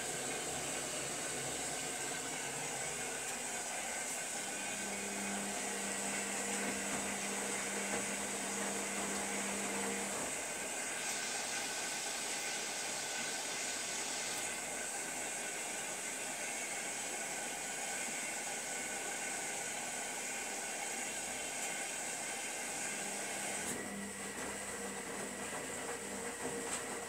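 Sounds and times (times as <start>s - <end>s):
washing machine water rushing: 0.0s - 27.0s.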